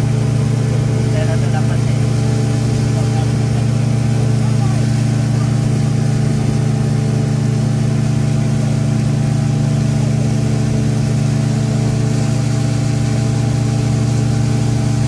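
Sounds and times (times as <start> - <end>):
speedboat engines droning: 0.0 - 15.0.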